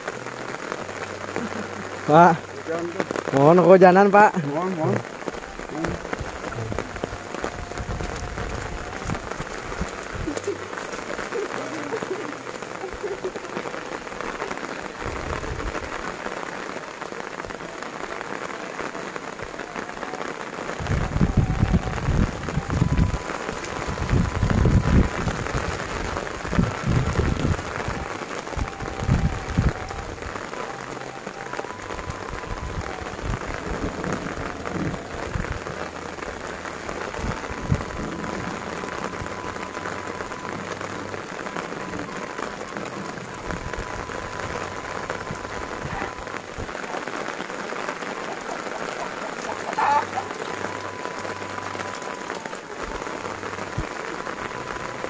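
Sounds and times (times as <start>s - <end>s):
steady rain falling: 0.0s - 55.0s
low rumbling: 4.3s - 16.1s, 20.8s - 46.8s.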